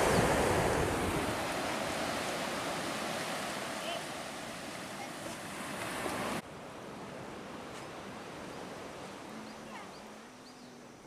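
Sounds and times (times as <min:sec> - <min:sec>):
wind noise: 0:00.0 - 0:03.4
sea surf: 0:00.0 - 0:10.4.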